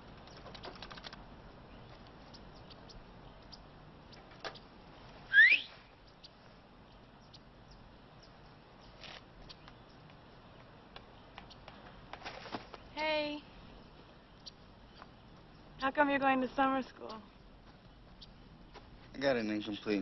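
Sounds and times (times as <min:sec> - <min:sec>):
rapid clicking: 0:00.0 - 0:01.2
sharp rising whistle: 0:05.3 - 0:05.8.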